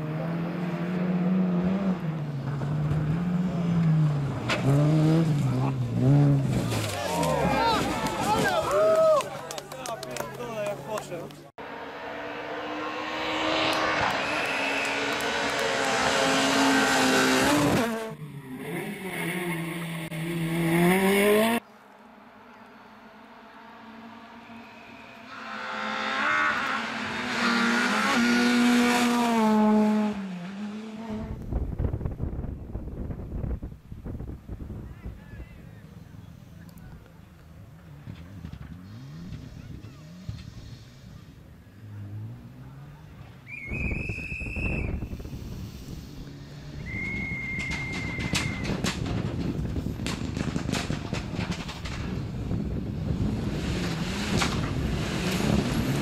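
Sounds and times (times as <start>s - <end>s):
rally car engine revving: 0.0s - 8.4s, 11.6s - 21.6s, 23.6s - 31.6s, 37.6s - 43.4s, 45.1s - 56.0s
wind rumble on microphone: 31.2s - 35.7s, 43.7s - 56.0s
whistle blasts: 43.4s - 45.1s, 46.8s - 48.8s
sharp cracks: 47.5s - 52.2s.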